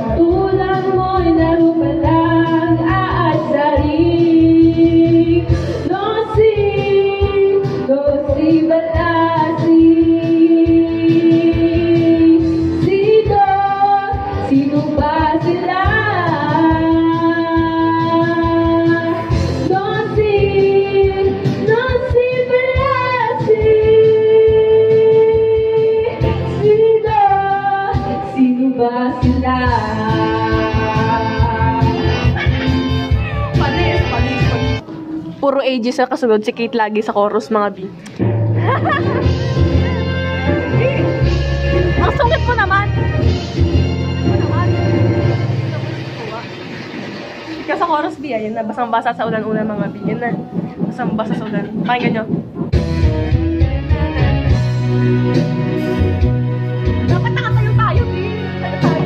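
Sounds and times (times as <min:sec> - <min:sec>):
woman singing into microphone: 0:00.0 - 0:32.5
instrumental backing track: 0:00.0 - 0:59.0.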